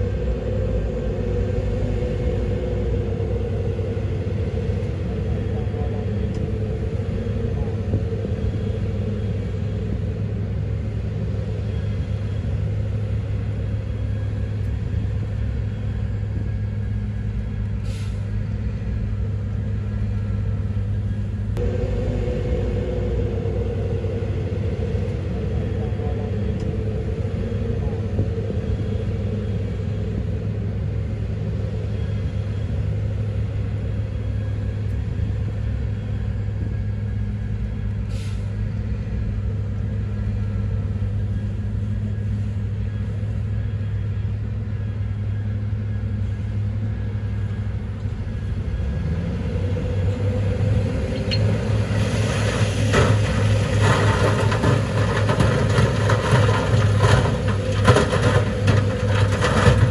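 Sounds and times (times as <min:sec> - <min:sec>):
diesel machinery rumbling: 0:00.0 - 0:59.9
short air hisses: 0:17.8 - 0:18.3, 0:38.1 - 0:38.5
truck bed tipping hum: 0:52.5 - 0:59.9.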